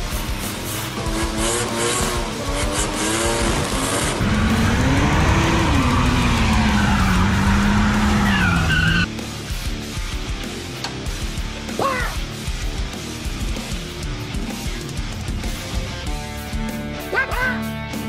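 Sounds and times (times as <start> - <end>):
car engines revving: 0.0 - 9.2
tyres squealing: 4.7 - 9.1.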